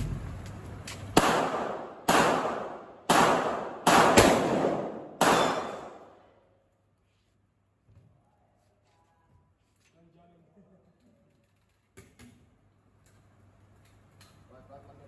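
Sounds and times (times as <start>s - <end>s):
pistol shots echoing: 1.2s - 6.2s.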